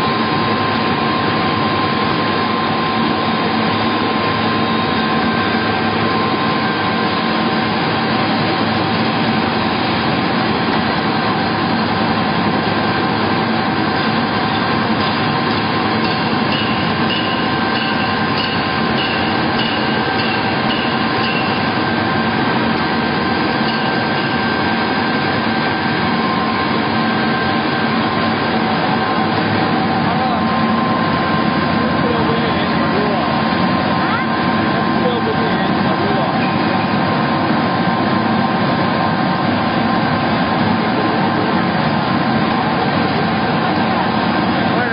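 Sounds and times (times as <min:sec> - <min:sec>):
pellet mill machine drone: 0:00.0 - 0:44.9
steady machine whining tones: 0:00.0 - 0:44.9.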